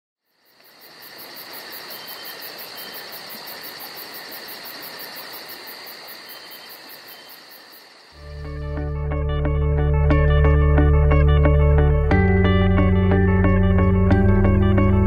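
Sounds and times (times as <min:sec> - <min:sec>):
insects chirring: 0:00.2 - 0:08.9.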